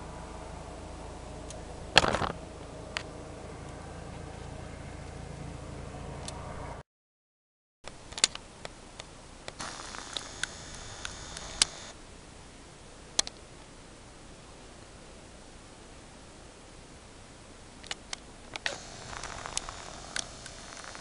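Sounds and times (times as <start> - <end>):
low steady rumble: 0.0 - 6.8, 8.4 - 21.0
faint steady hiss: 7.9 - 21.0
sharp clicks and ticks: 9.5 - 11.9, 17.8 - 21.0.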